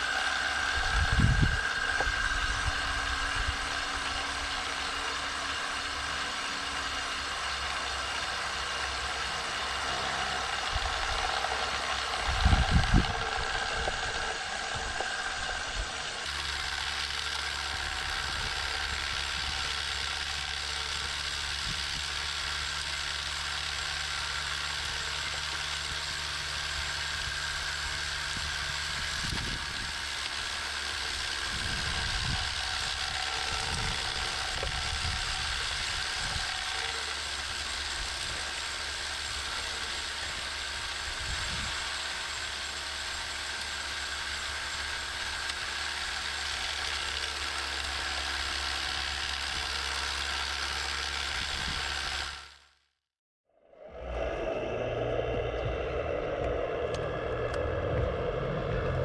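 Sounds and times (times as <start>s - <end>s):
vibrating screener motor whir: 0.0s - 52.9s, 53.6s - 59.0s
dull low thumps: 54.0s - 59.0s.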